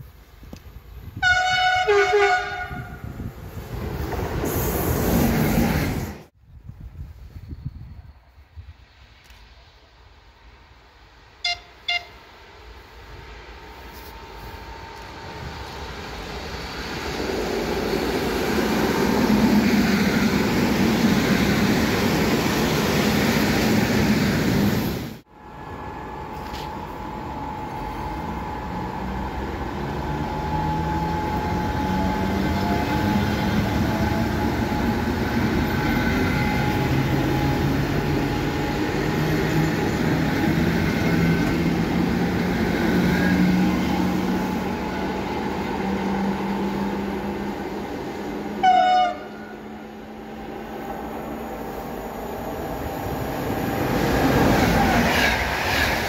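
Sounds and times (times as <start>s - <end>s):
electric train whine: 7.2s - 56.0s.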